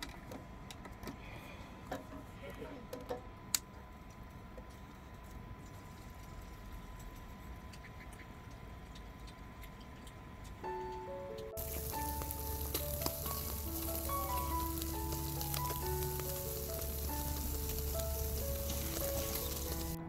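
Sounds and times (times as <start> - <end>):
background music melody: 10.6 - 20.0
fish sizzling on grill: 11.6 - 20.0.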